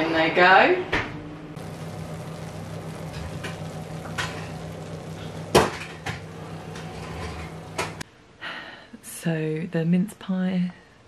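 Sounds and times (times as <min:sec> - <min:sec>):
steady low hum: 0:01.3 - 0:08.0.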